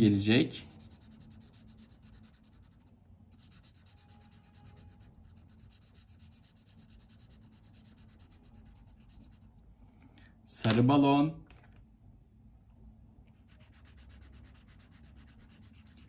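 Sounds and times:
marker colouring on paper: 0:00.4 - 0:09.5, 0:13.3 - 0:16.0.

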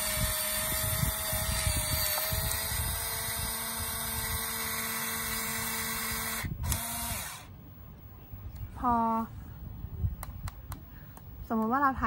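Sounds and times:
camera motor whirring: 0:00.0 - 0:07.5.

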